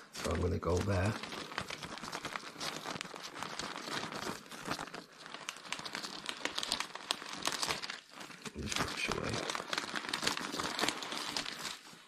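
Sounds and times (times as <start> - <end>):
paper crinkling under an iron: 0.0 - 12.0.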